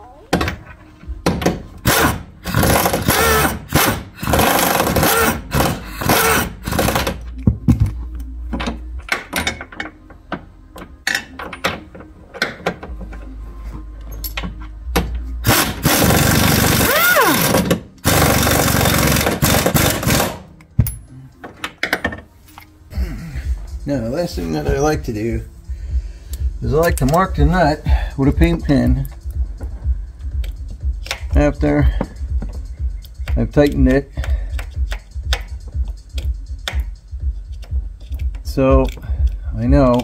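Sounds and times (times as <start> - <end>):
impact wrench running: 1.8 - 7.3, 15.4 - 20.4.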